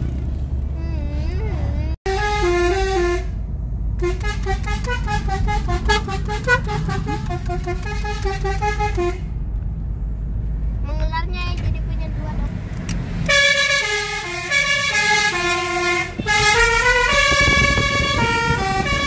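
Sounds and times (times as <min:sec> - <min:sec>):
low rumble of moving car: 0:00.0 - 0:19.0
multi-tone horn playing tune: 0:02.1 - 0:03.4, 0:04.0 - 0:09.3, 0:13.3 - 0:19.0.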